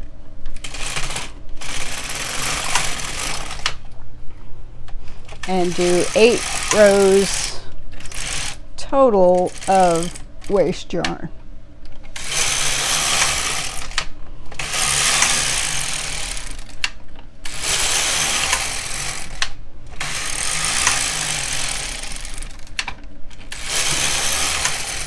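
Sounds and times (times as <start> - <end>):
knitting machine carriage rattling: 0.6 - 3.8, 5.2 - 8.6, 9.4 - 10.6, 12.1 - 16.8, 17.6 - 19.4, 20.0 - 25.0.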